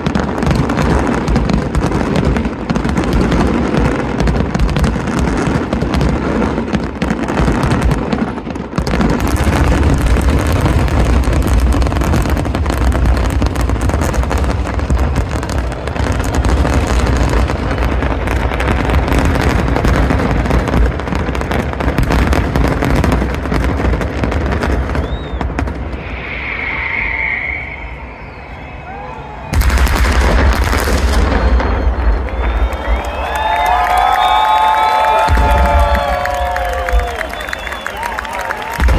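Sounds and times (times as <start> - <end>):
fireworks crackling: 0.0 - 38.9
high whistling: 25.0 - 29.7, 37.0 - 38.4.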